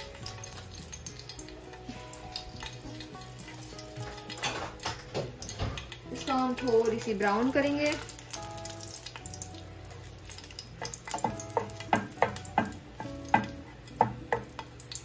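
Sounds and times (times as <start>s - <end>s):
chilies sizzling in hot oil: 0.0s - 15.0s
spatula scraping and knocking pan: 0.1s - 6.0s, 10.8s - 14.6s.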